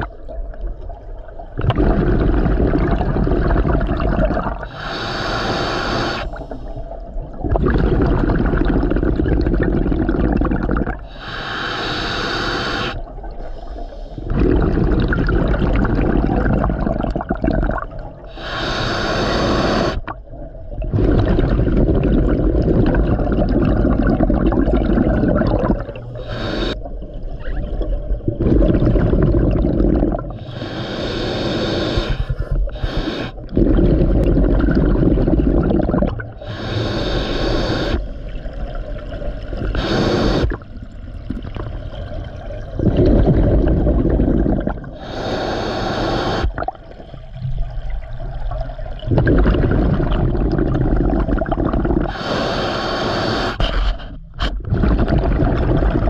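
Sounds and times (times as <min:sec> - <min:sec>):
exhaled bubbles rumbling: 0:00.0 - 0:05.0, 0:05.9 - 0:11.2, 0:12.9 - 0:18.4, 0:19.3 - 0:31.0, 0:31.6 - 0:45.4, 0:46.2 - 0:52.2, 0:54.0 - 0:56.0
regulator hissing inhale: 0:04.6 - 0:07.0, 0:11.0 - 0:14.3, 0:18.3 - 0:20.1, 0:26.1 - 0:26.8, 0:30.3 - 0:33.6, 0:36.3 - 0:38.4, 0:39.7 - 0:40.6, 0:44.9 - 0:46.6, 0:52.0 - 0:54.6.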